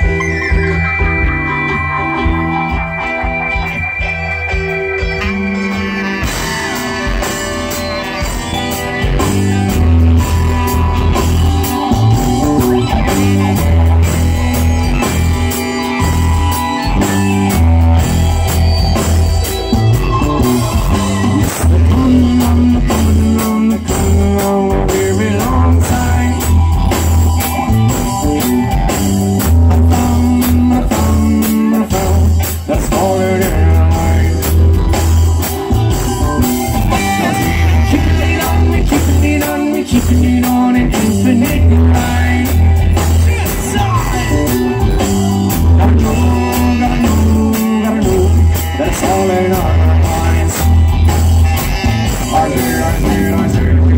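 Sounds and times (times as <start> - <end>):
drum kit: 0.0 - 53.9
electric guitar: 0.0 - 53.9
heavy bass line: 0.0 - 53.9
keyboards: 0.0 - 53.9.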